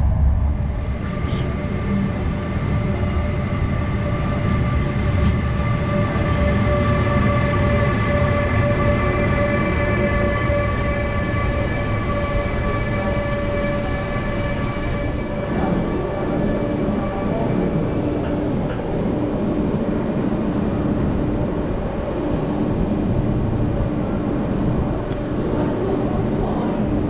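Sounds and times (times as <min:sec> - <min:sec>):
train wheels rumbling: 0:00.0 - 0:20.5
high steady whine: 0:00.0 - 0:27.0.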